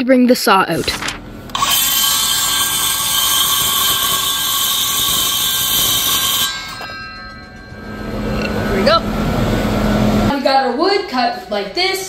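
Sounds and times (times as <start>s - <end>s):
circular saw cutting wood: 1.5s - 9.9s.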